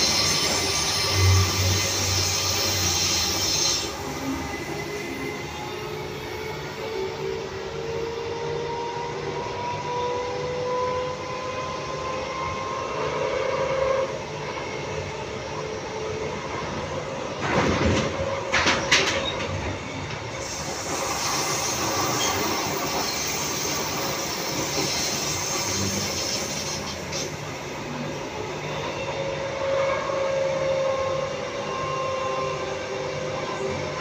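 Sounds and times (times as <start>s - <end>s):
train hiss: 0.0s - 7.4s, 20.2s - 29.3s
train ride rumble: 0.0s - 34.0s.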